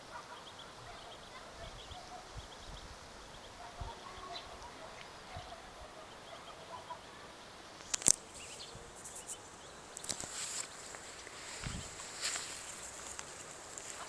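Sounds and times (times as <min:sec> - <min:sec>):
ducks calling faintly: 0:00.0 - 0:14.0
sharp clicks: 0:07.8 - 0:08.2.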